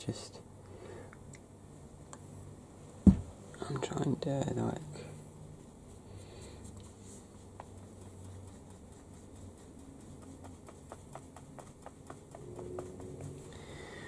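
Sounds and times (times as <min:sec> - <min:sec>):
low steady hum: 0:00.0 - 0:14.0
paintbrush tapping: 0:06.7 - 0:13.8.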